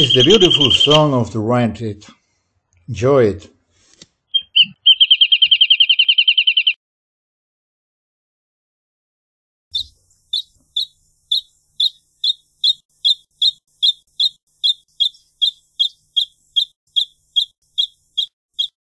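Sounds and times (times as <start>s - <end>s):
bird singing short high notes: 0.0s - 1.0s, 4.4s - 6.8s, 9.7s - 18.8s.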